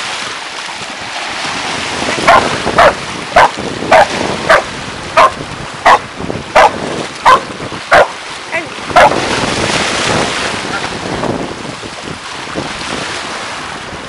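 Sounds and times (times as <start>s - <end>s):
surf breaking over rocks: 0.0s - 14.0s
wind on microphone: 0.0s - 14.0s
dog barking: 2.2s - 6.0s, 6.6s - 8.2s, 9.0s - 9.2s.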